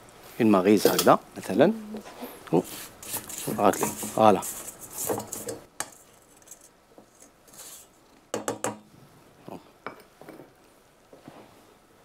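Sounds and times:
spatula scraping metal bowl: 2.6 - 5.7.

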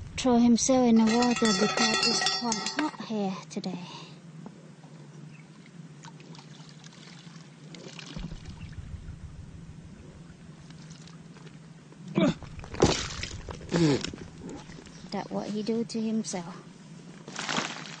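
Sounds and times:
water sloshing and trickling: 1.0 - 3.0, 5.4 - 9.0, 10.2 - 11.7, 12.4 - 16.4, 17.3 - 18.0
bucket splashing: 6.3 - 9.0, 12.4 - 15.2, 17.3 - 18.0.

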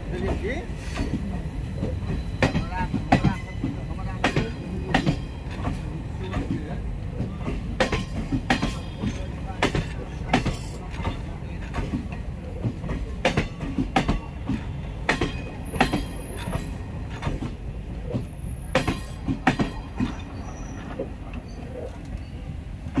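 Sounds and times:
train coaches rumbling: 0.0 - 23.0
wheels clanking over rail joints: 0.0 - 23.0
faint wheel squeal: 20.1 - 22.6.

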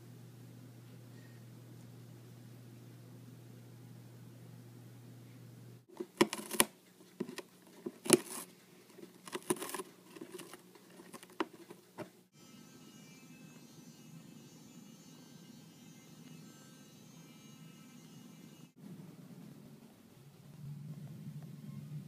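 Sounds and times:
faint steady hum: 0.0 - 22.0
cat gnawing cardboard box: 5.9 - 12.2.

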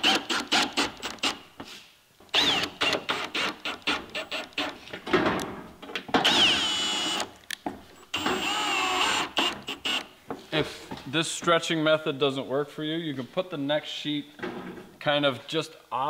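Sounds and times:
cordless drill driving screws: 0.0 - 1.4, 2.3 - 4.8, 6.2 - 7.3, 8.0 - 10.1.

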